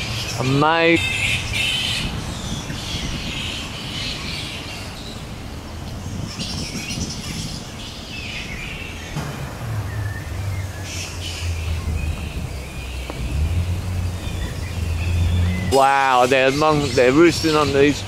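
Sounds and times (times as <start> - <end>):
flying foxes calling: 0.0 - 18.0
low background rumble: 8.8 - 18.0.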